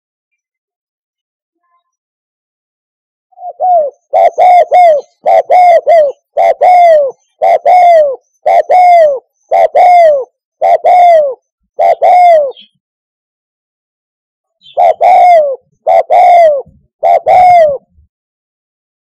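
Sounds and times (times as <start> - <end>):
dove cooing: 3.4 - 12.7, 14.6 - 18.1.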